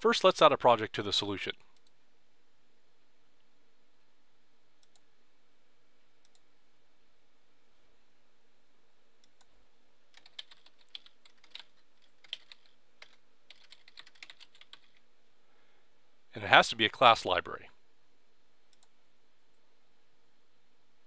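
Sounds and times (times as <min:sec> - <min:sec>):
low steady hum: 0:00.0 - 0:21.0
faint clicks: 0:01.6 - 0:02.0, 0:04.8 - 0:05.1, 0:06.2 - 0:06.5, 0:18.7 - 0:19.6
computer keyboard typing: 0:09.2 - 0:15.0.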